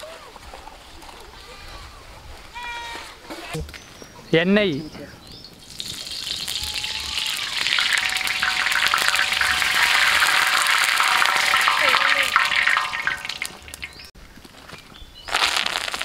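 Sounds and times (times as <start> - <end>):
oil sizzling on hot griddle: 5.6 - 14.1.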